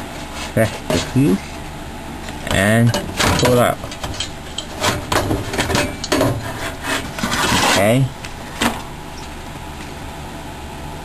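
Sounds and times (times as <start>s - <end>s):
metal and plastic scraping: 2.4s - 8.0s.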